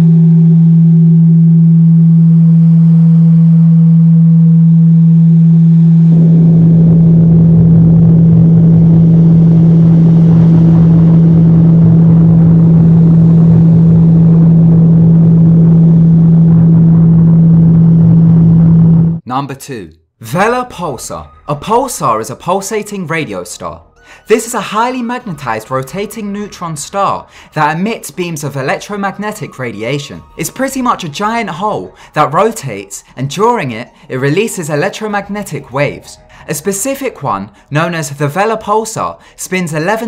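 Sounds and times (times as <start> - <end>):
low hum: 0.0 - 19.2, 23.8 - 37.8.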